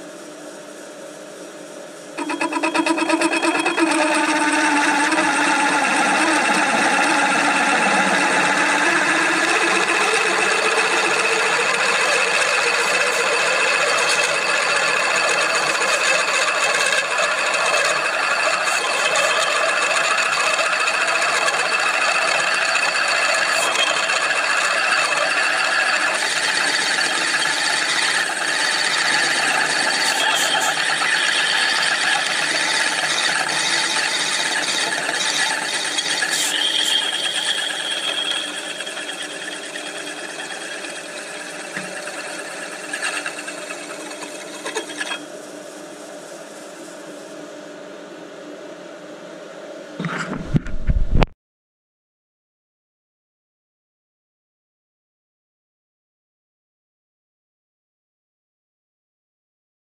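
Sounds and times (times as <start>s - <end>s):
power drill boring into metal: 2.2s - 45.3s.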